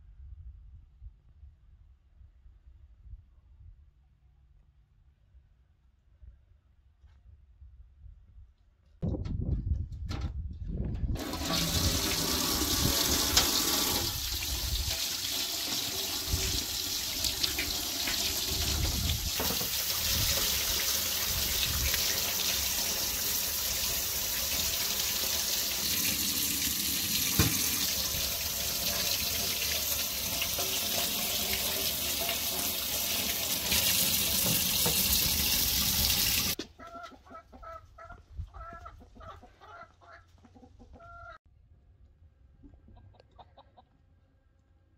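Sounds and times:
tap water splashing in sink: 11.2 - 36.6.

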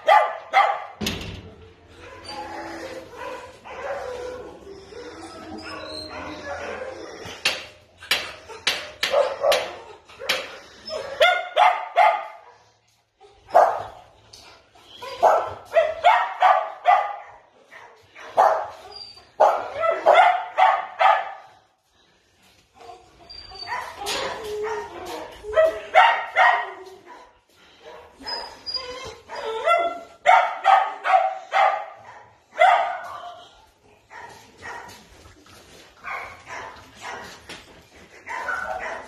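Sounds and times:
small dogs barking: 0.0 - 0.9, 9.1 - 12.4, 15.2 - 17.5, 19.4 - 21.5, 23.7 - 27.3, 29.3 - 33.3.

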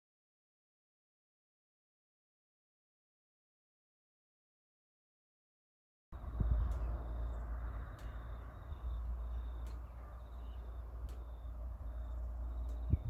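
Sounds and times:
steady low rumble: 6.2 - 13.0.

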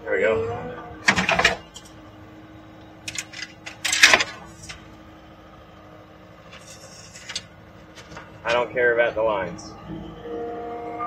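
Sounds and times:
machine engine humming: 0.0 - 11.0
metal clanking and scraping: 1.0 - 2.0, 3.0 - 4.8, 6.4 - 8.7.

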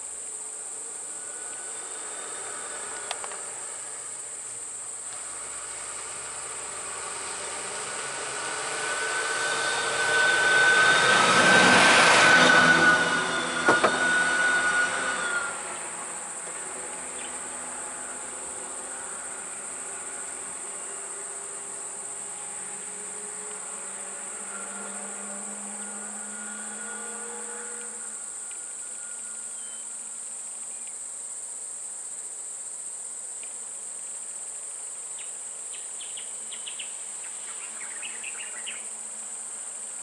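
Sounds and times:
steady whine: 0.0 - 31.4
insects droning: 0.0 - 40.0
diesel bus driving past: 0.7 - 30.3.

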